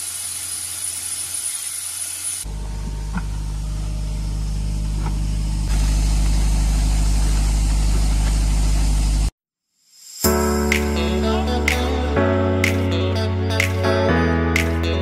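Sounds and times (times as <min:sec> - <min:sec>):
air compressor hum: 0:00.0 - 0:09.3
blast air hissing: 0:04.1 - 0:09.3.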